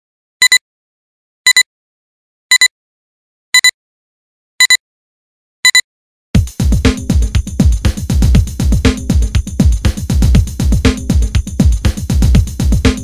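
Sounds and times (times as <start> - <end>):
music: 6.4 - 13.0.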